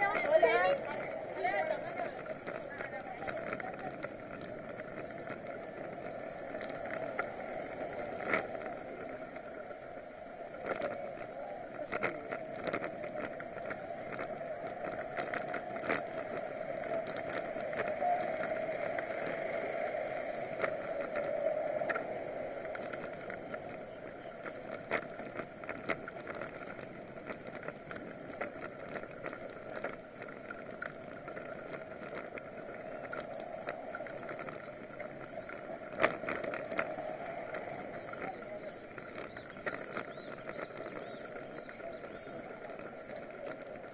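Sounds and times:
bicycle clicks and rattles: 0.0s - 43.9s
wind and tyre noise: 0.0s - 43.9s.

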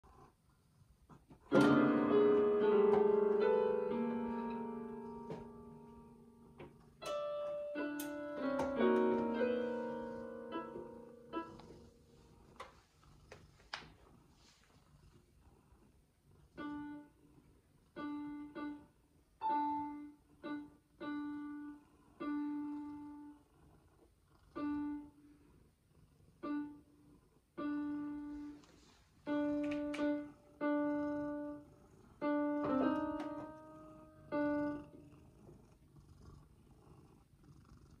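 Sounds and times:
cat purring: 0.0s - 1.5s, 2.2s - 20.4s, 21.2s - 38.0s
electronic keyboard notes: 1.5s - 12.0s, 16.6s - 17.2s, 17.9s - 23.4s, 24.6s - 25.2s, 26.4s - 27.0s, 27.6s - 28.6s, 29.3s - 35.0s.

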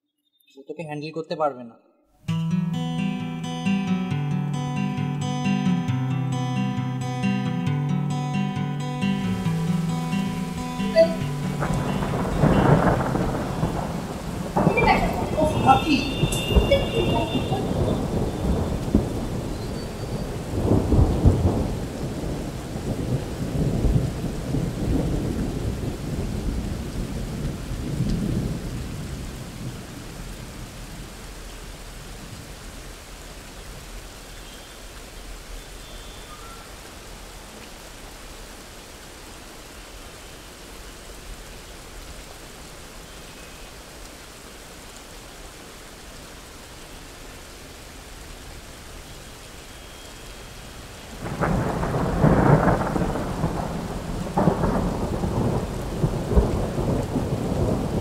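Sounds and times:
steady rain: 2.3s - 58.0s
thunder rumbling: 9.4s - 31.0s, 51.0s - 58.0s.

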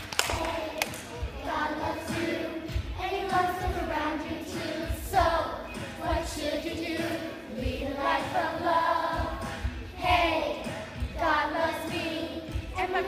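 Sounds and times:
children singing: 0.0s - 13.0s
low beat thumps: 9.0s - 11.4s.

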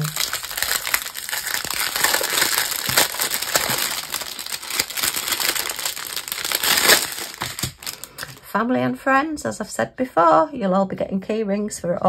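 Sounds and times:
plastic packaging crinkling: 0.0s - 8.4s.

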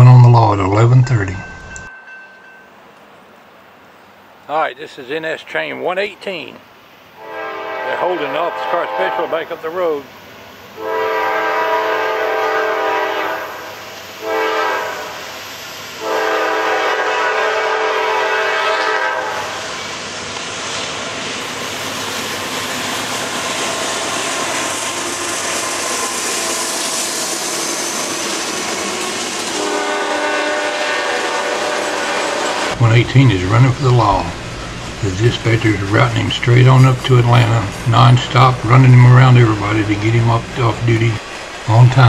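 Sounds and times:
diesel locomotive horn: 7.2s - 9.7s, 10.7s - 15.3s, 16.0s - 19.8s, 29.5s - 36.9s
train wheels rumbling on rail: 7.4s - 42.0s.

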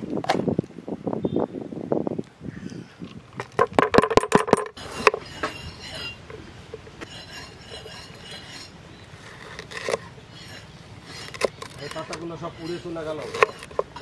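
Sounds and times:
knife cutting on wooden board: 9.3s - 14.0s.

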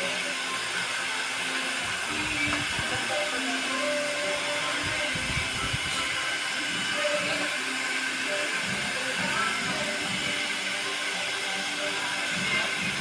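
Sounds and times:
hair dryer running: 0.0s - 13.0s.

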